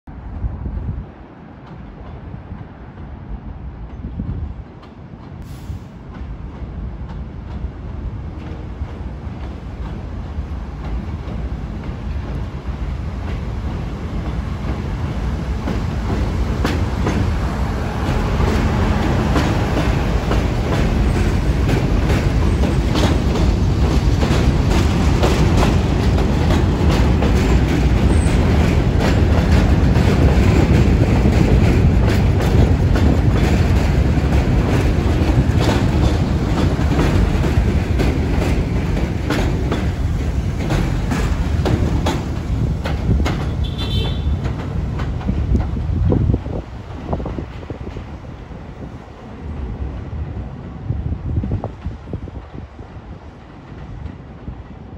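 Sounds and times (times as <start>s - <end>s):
subway train wheels rumbling on rails: 0.1s - 54.9s
wheels clicking over rail joints: 18.0s - 48.1s.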